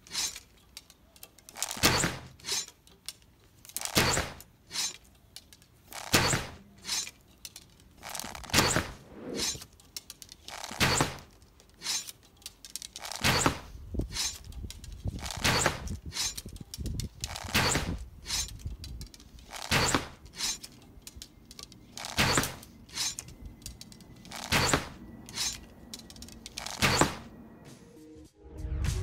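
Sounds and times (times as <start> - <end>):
arrows clicking and rustling: 0.0 - 27.4
bow string release shots: 5.9 - 7.2, 8.0 - 9.7, 10.4 - 12.1, 17.3 - 18.6, 19.4 - 20.7, 22.0 - 23.3, 24.3 - 27.3.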